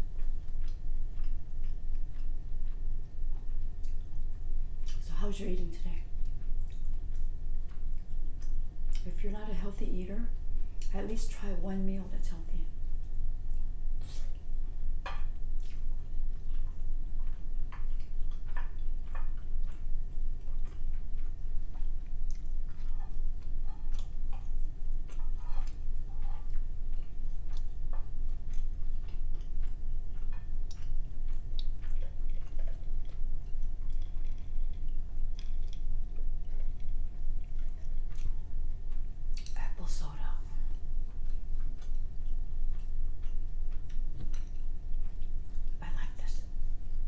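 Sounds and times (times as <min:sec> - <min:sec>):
person chewing and eating: 0:00.0 - 0:05.0, 0:06.0 - 0:09.1, 0:12.7 - 0:47.0
steady low hum: 0:00.0 - 0:47.0
mouth clicks and smacks: 0:15.1 - 0:39.6.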